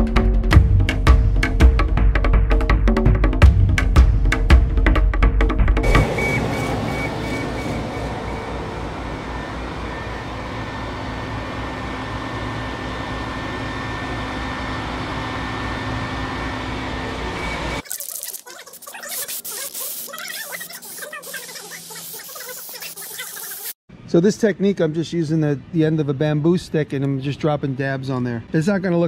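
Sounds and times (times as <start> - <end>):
machine drone with whining tones: 5.8 - 17.8.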